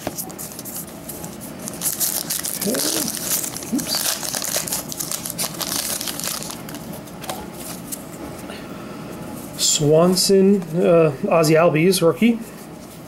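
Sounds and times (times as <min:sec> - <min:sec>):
foil wrapper tearing and crackling: 0:01.7 - 0:06.9.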